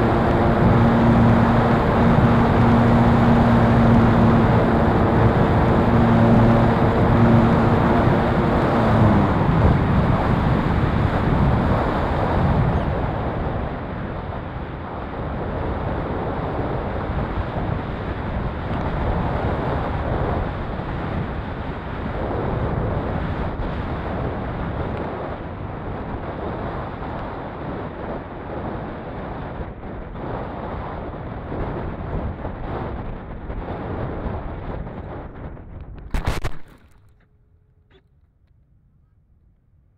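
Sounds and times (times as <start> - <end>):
electric motor and propeller hum: 0.0 - 14.0.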